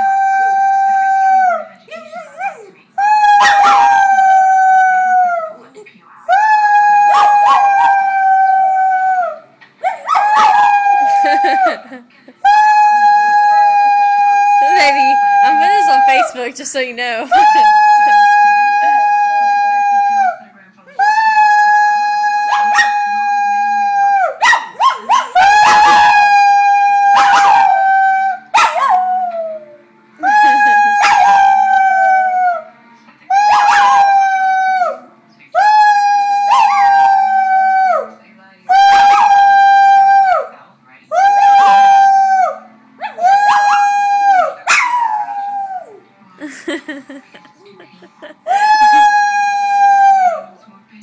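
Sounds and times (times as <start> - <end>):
dog howling: 0.0 - 16.4, 17.3 - 20.4, 21.0 - 32.7, 33.3 - 38.1, 38.7 - 40.5, 41.1 - 46.0, 48.4 - 50.5
dog yipping: 3.4 - 4.1, 9.8 - 11.6, 24.4 - 26.2, 27.2 - 27.8, 28.5 - 29.0, 30.4 - 31.4
person howling: 10.5 - 16.4.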